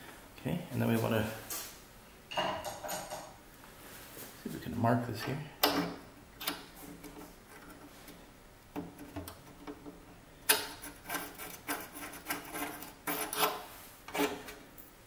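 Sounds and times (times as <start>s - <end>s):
tool scratching on plastic: 10.7s - 14.6s.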